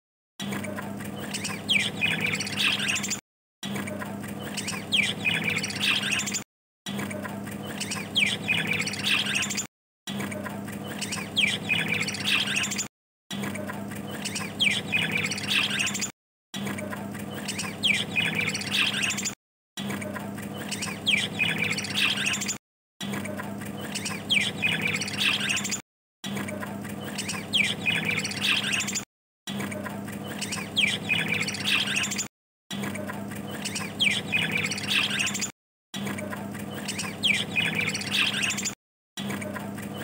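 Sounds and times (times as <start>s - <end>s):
budgerigars chattering and squawking: 1.2s - 3.2s, 4.4s - 6.4s, 7.7s - 9.7s, 10.9s - 12.9s, 14.2s - 16.1s, 17.4s - 19.4s, 20.6s - 22.6s, 23.9s - 25.8s, 27.0s - 29.0s, 30.3s - 32.3s, 33.6s - 35.5s, 36.8s - 38.8s.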